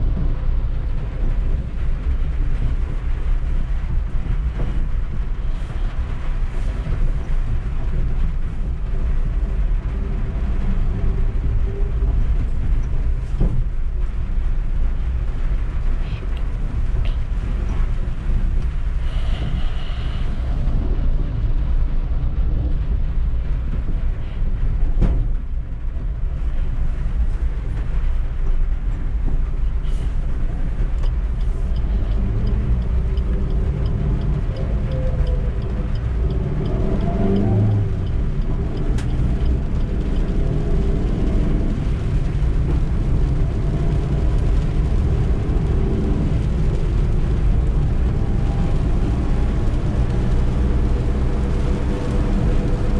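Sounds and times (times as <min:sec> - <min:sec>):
car engine running: 0:00.0 - 0:52.9
low road rumble: 0:00.0 - 0:52.9.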